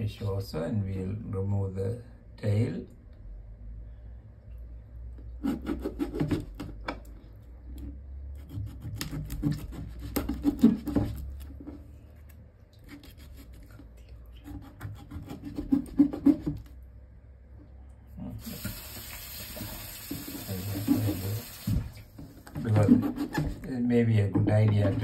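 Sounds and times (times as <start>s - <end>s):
knife cutting through fish bone: 8.3s - 11.5s, 12.8s - 13.8s, 14.4s - 16.7s.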